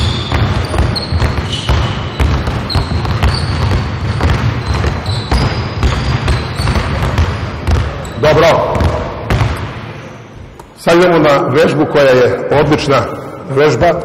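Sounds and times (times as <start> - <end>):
shoe squeaks: 0.0 - 8.4
basketballs bouncing on wooden floor: 0.0 - 10.7.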